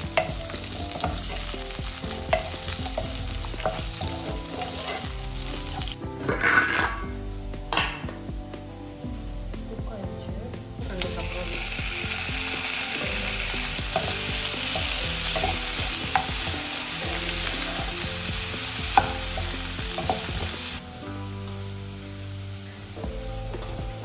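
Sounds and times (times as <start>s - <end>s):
vegetables sizzling in hot oil: 0.0s - 24.0s
wooden spatula stirring: 13.2s - 20.8s.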